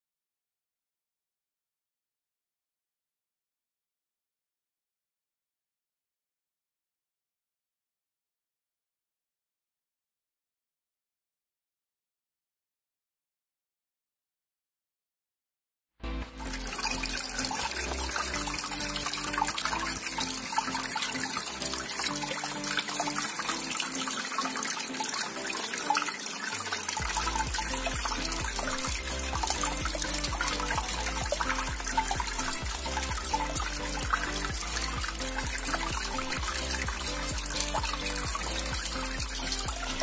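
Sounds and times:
background music: 16.0s - 40.0s
fountain water trickling: 16.4s - 40.0s.

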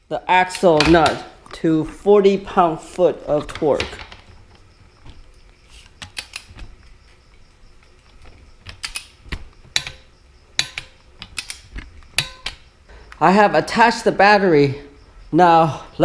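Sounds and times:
metallic ratchet clicks: 8.7s - 12.7s.

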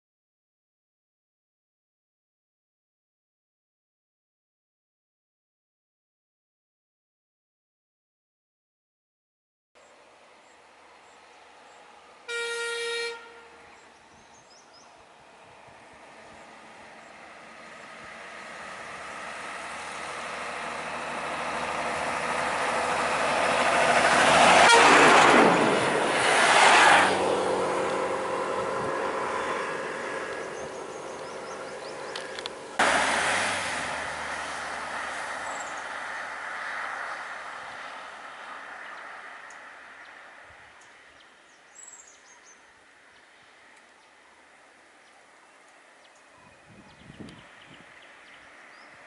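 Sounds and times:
heavy vehicle passing: 15.0s - 40.6s.

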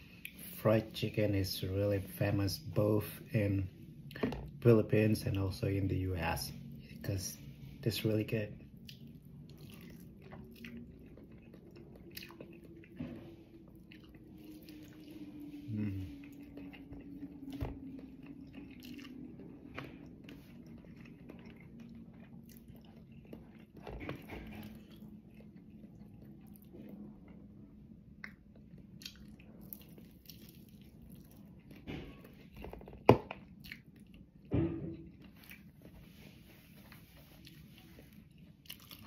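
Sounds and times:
faint low hum: 0.0s - 39.0s
person chewing crispy food: 8.6s - 27.5s, 28.2s - 31.8s, 32.4s - 34.5s, 36.9s - 39.0s.

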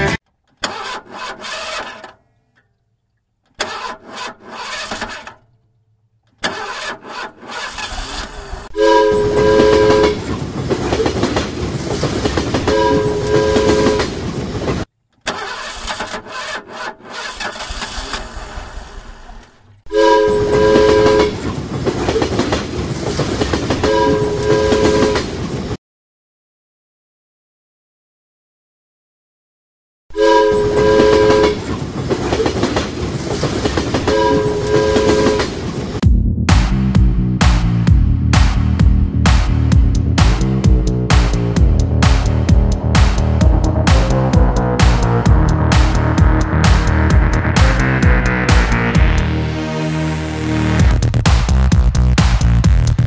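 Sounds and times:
train rumbling: 7.5s - 14.9s, 17.2s - 25.8s, 30.1s - 52.2s
train horn blasts: 8.7s - 10.4s, 12.6s - 14.2s, 19.9s - 21.5s, 23.8s - 25.3s, 30.1s - 31.7s, 34.0s - 35.6s
choppy engine sounds: 36.0s - 53.0s.

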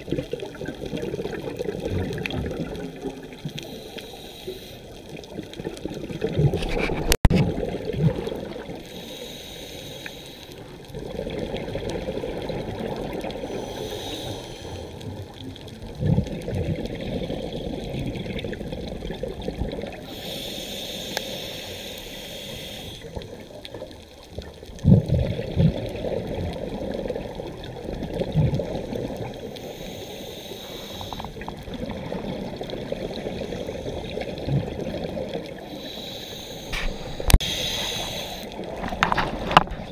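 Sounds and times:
exhaled bubbles gurgling: 0.0s - 3.9s, 4.8s - 9.3s, 10.6s - 39.9s
regulator inhalation hiss: 3.6s - 5.0s, 8.9s - 10.7s, 13.4s - 15.0s, 20.1s - 23.2s, 29.5s - 31.4s, 35.6s - 38.6s.

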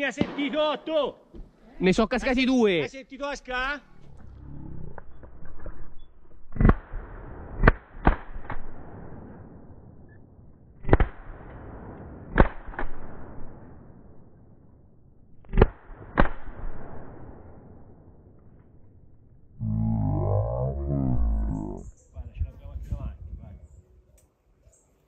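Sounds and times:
shotgun shots echoing: 0.0s - 1.0s.

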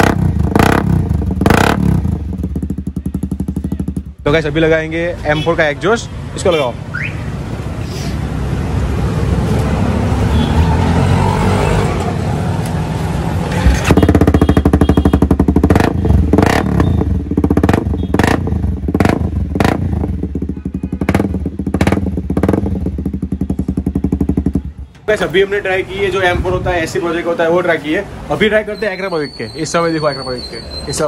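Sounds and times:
motorcycle engine revving: 0.0s - 4.4s, 9.2s - 24.9s.

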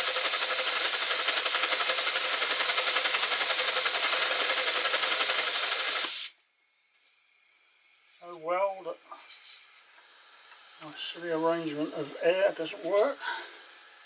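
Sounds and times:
loud hiss of air: 0.0s - 6.4s, 9.2s - 12.2s.

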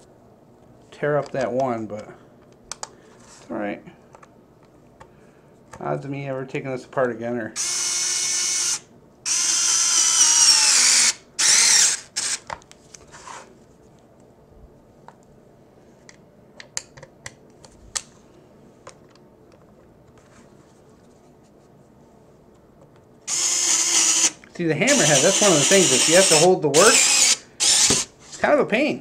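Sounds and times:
electric screwdriver motor whining: 7.6s - 12.4s, 23.3s - 28.1s.

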